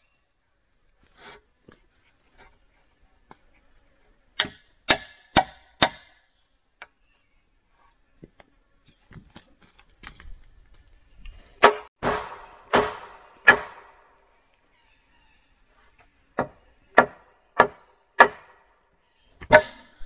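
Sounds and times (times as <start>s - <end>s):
blade chopping into wood: 4.4s - 6.2s, 11.6s - 14.0s, 16.4s - 18.6s.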